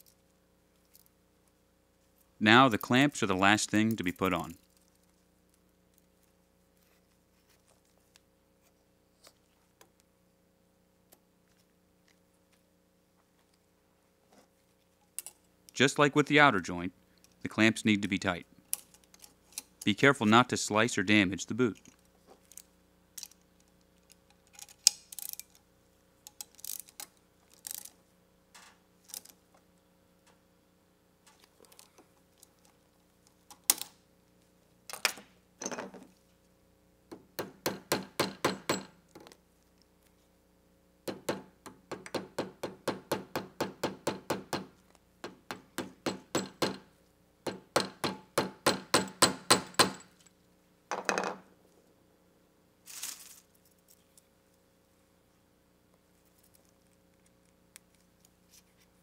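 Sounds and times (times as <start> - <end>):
tools being handled: 21.7 - 25.6, 26.3 - 28.0, 52.9 - 54.3.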